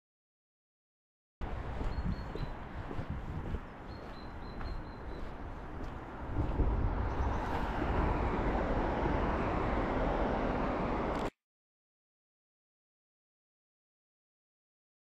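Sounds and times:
road traffic rushing: 1.4 - 11.3.

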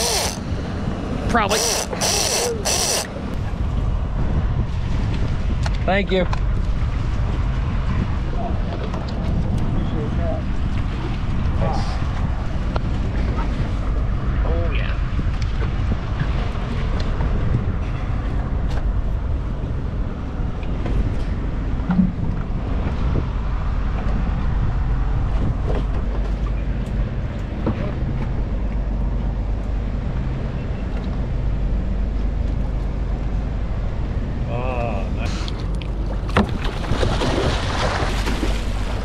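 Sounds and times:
outboard motors idling: 0.0 - 3.4
water noise: 0.0 - 39.0
wind: 0.0 - 39.0.

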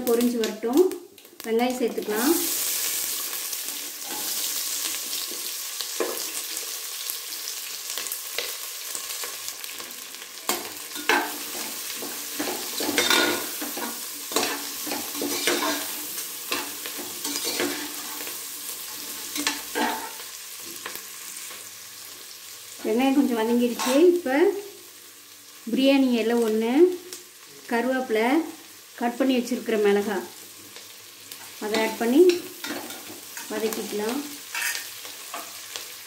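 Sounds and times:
onions sizzling in hot oil: 0.0 - 36.0
metal ladle scraping a pot: 34.5 - 34.8.

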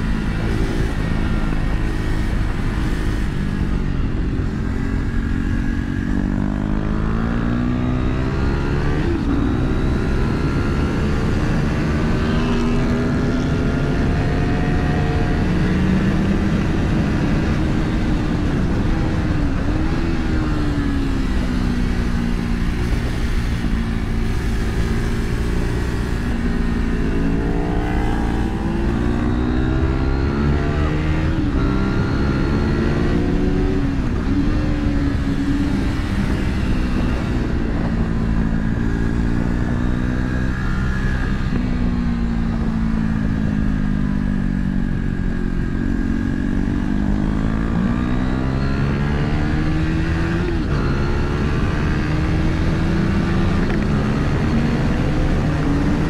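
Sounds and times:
vehicle engine revving: 4.7 - 41.8.

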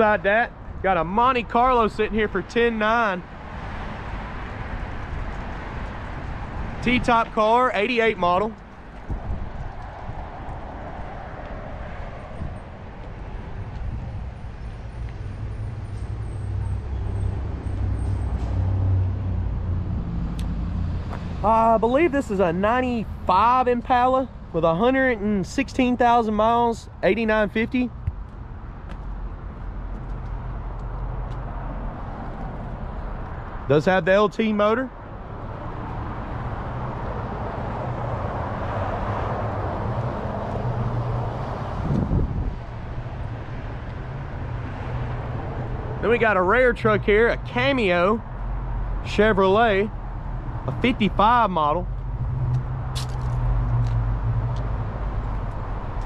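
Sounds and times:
low rumble of road traffic: 0.0 - 56.0
vehicle passing: 2.3 - 23.8, 35.1 - 56.0.

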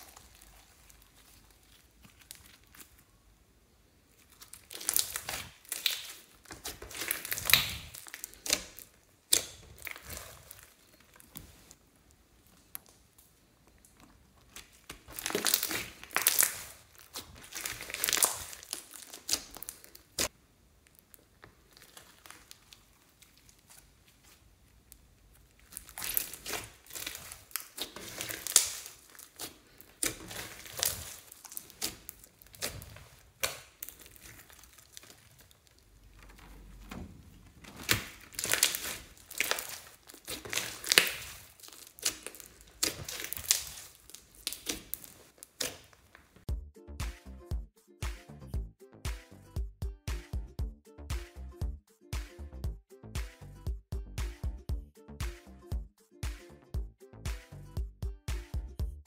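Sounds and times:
slime crackling and squishing: 0.0 - 46.5.

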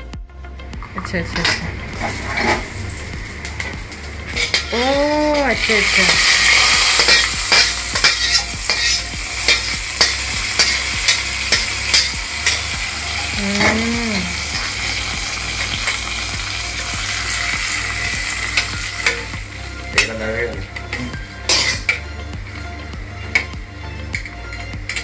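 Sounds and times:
hot oil sizzling: 0.9 - 25.0
metal spatula scraping a pan: 1.4 - 3.0, 3.6 - 13.8, 20.8 - 22.0.

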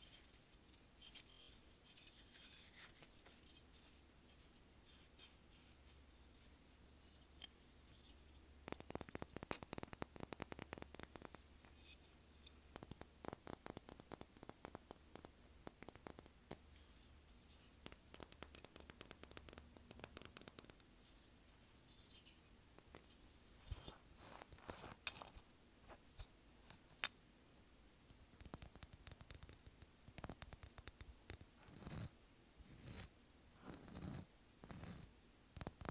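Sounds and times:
scratching and handling objects: 0.0 - 27.7
fingernails tapping on seashells: 8.7 - 11.4, 12.8 - 16.6.

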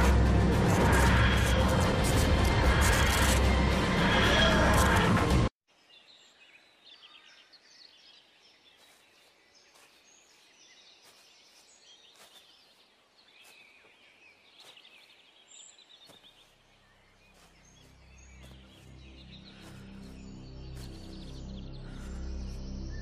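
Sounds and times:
low music: 0.0 - 5.5, 17.4 - 23.0
small birds chirping and trilling: 0.7 - 23.0.

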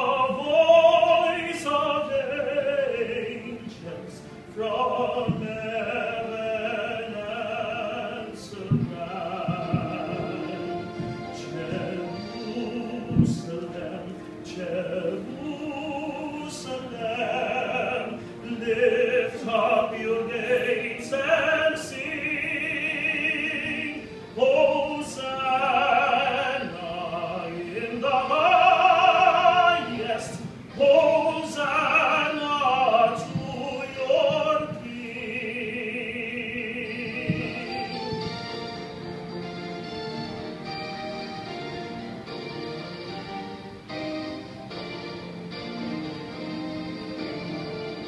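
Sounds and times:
person singing slow song: 0.0 - 39.3
musical accompaniment: 0.0 - 48.0.

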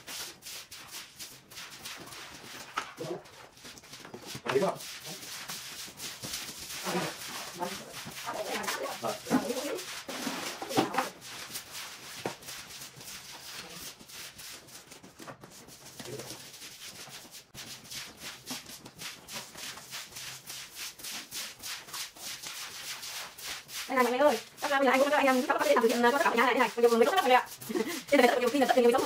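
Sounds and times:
scraping strokes: 0.0 - 29.0
person talking: 23.9 - 29.0.

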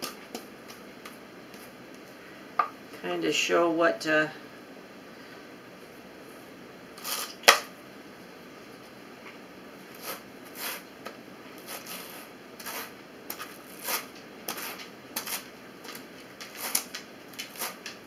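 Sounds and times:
hand carders brushing wool: 9.9 - 10.9, 11.6 - 18.0.

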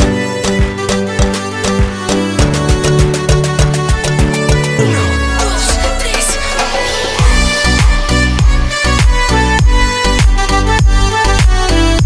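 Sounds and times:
kick-drum beat: 0.0 - 4.7, 7.2 - 12.0.

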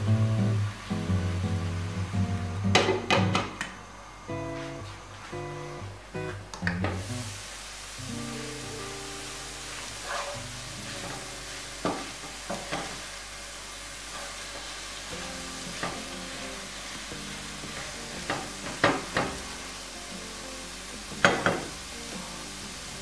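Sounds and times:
vegetables sizzling in a frying pan: 0.0 - 23.0
wooden spatula scraping a pan: 9.7 - 13.0.

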